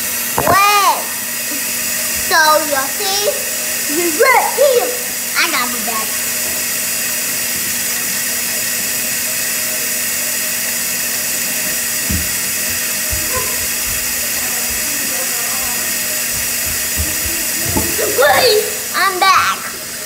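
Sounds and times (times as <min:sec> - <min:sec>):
faucet running water: 0:00.0 - 0:20.0
dull knock: 0:00.4 - 0:00.6, 0:12.0 - 0:14.9, 0:16.3 - 0:18.5.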